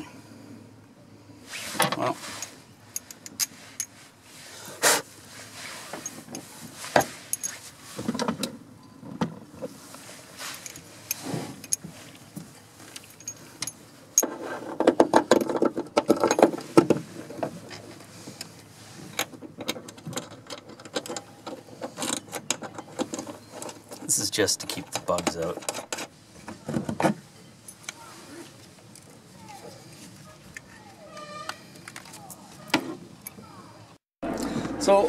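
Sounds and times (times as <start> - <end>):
metal tools clicking and rattling: 1.8 - 4.0, 6.0 - 8.3, 13.0 - 16.6, 19.2 - 26.1.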